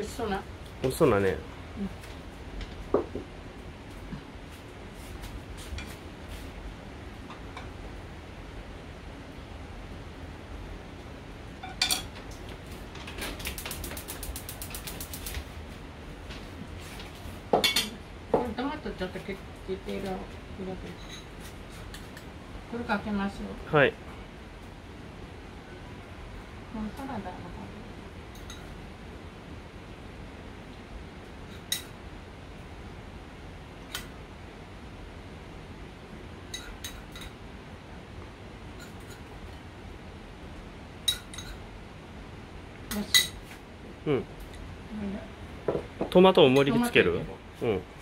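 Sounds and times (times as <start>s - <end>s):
fast run of light clicks: 13.4s - 15.4s.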